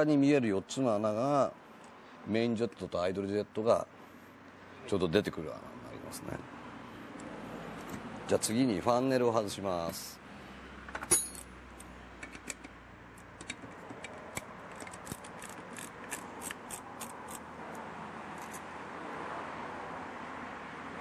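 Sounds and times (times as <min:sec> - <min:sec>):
screwdriver and bolts clicking: 0:10.9 - 0:17.4, 0:18.4 - 0:18.6.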